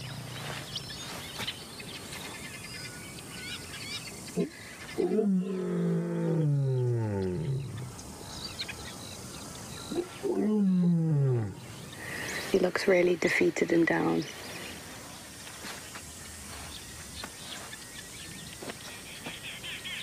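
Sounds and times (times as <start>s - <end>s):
lion low moaning calls: 4.4s - 8.0s, 9.9s - 11.7s.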